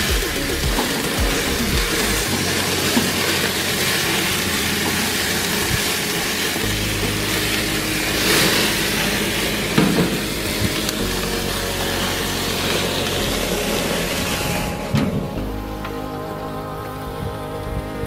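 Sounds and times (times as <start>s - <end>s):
burgers sizzling on a grill: 0.0s - 16.6s.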